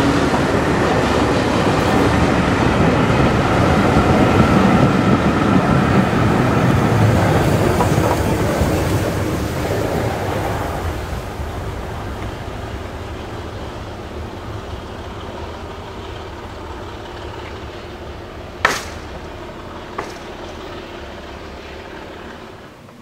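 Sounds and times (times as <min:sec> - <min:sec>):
low rumble of train: 0:00.0 - 0:23.0.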